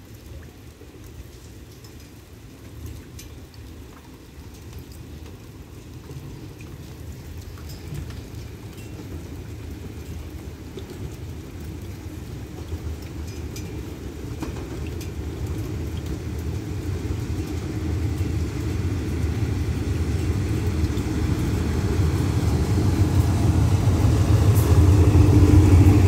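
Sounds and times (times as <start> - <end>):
locomotive rumbling: 7.0 - 26.0.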